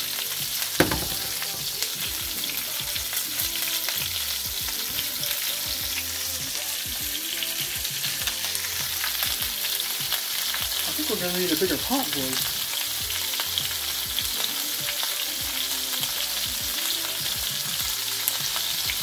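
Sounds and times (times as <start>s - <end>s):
vegetables sizzling in oil: 0.0s - 19.0s
sharp knock: 0.8s - 1.5s.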